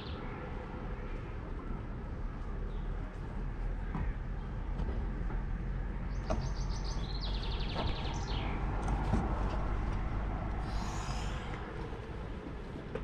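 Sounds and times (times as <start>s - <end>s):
steady low rumble: 0.0s - 13.0s
songbird singing a trill: 6.1s - 8.7s.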